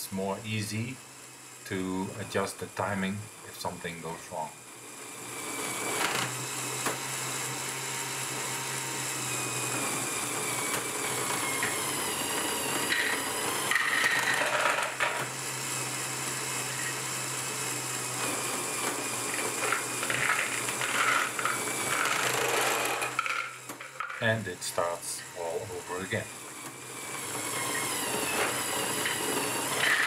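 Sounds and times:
motor whine with whirring gears: 0.0 - 30.0.

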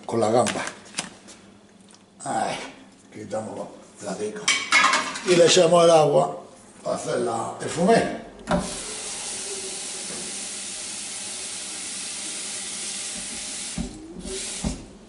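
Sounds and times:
tap water running into pot: 8.5 - 14.9.

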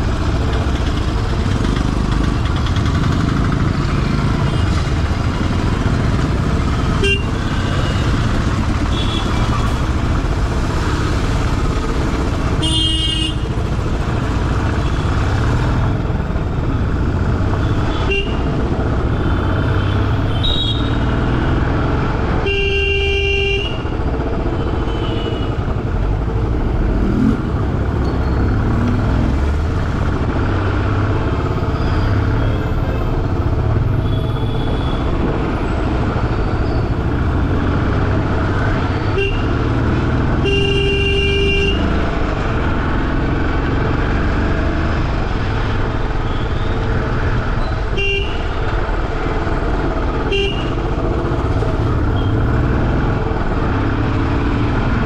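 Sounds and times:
motorcycle engine: 0.0 - 55.0
vehicle horns honking: 6.9 - 8.2, 8.8 - 9.8, 12.6 - 13.5, 17.6 - 18.6, 39.1 - 39.7, 40.4 - 41.9, 47.9 - 48.6, 50.2 - 50.9.

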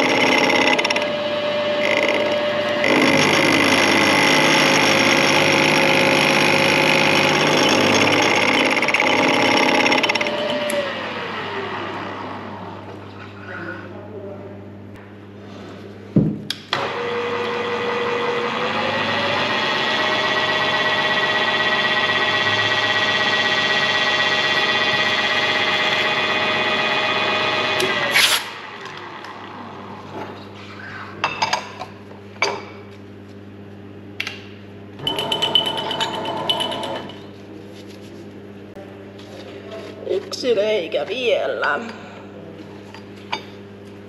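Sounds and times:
milling machine spindle whine: 0.0 - 13.1, 16.8 - 30.6.

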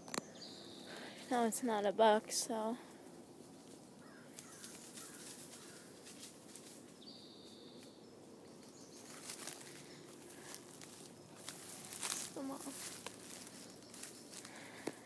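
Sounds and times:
soft rustles of movement: 2.5 - 7.9, 8.6 - 15.0
faint chirps: 6.9 - 15.0.

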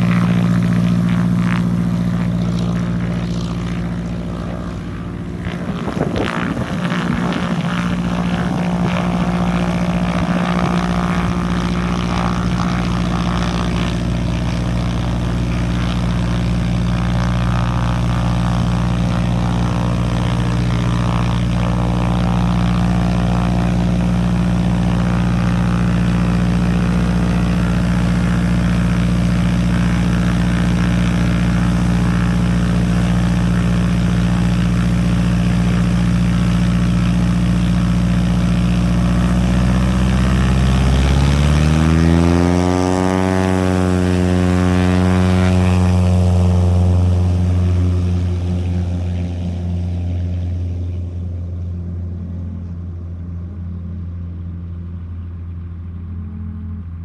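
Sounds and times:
light aircraft engine and propeller: 0.0 - 57.0.

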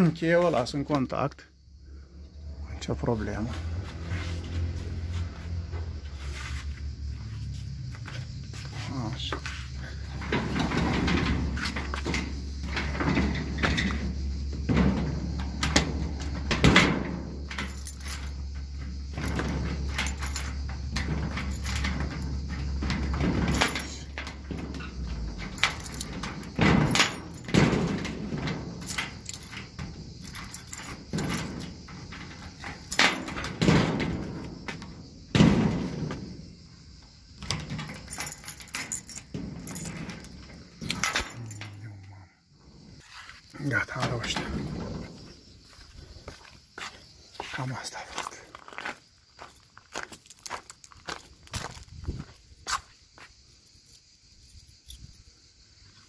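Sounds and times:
garage door clanking: 9.9 - 41.8, 43.8 - 45.6
keys jangling: 17.4 - 34.2, 37.4 - 42.2, 53.7 - 55.3.

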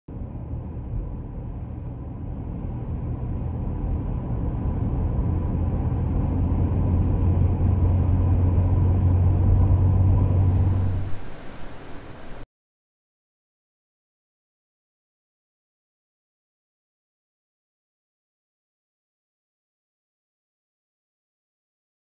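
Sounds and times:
car engine and tyre rumble: 0.1 - 12.4.

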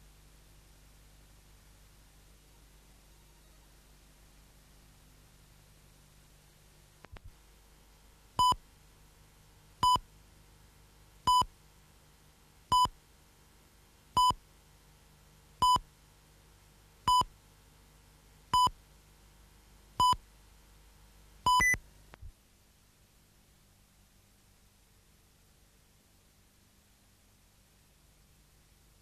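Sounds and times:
faint low hum: 0.0 - 29.0
countdown electronic beeps: 21.5 - 21.8.

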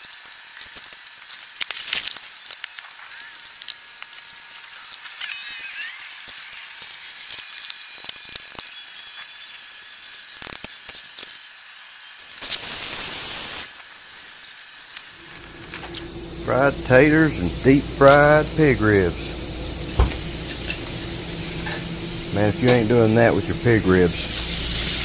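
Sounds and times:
burst of hiss: 12.3 - 13.8, 15.2 - 25.0.

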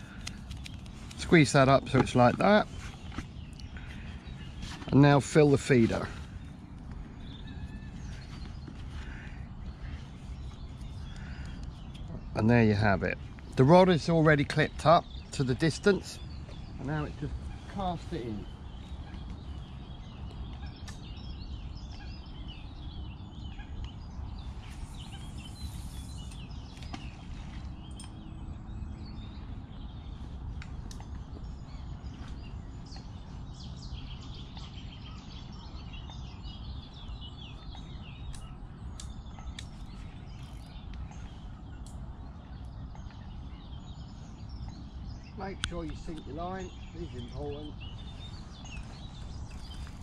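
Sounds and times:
small birds chirping: 0.0 - 50.0
steady low rumble: 0.0 - 50.0
brief hiss: 24.8 - 26.4.

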